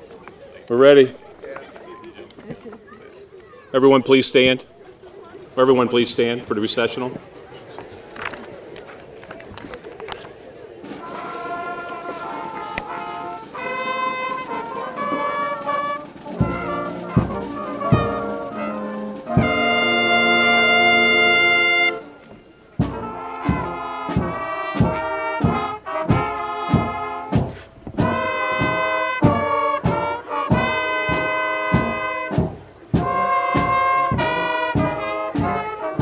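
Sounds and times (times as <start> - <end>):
school band playing: 10.8 - 36.0
drum beat: 11.1 - 22.0, 22.8 - 36.0.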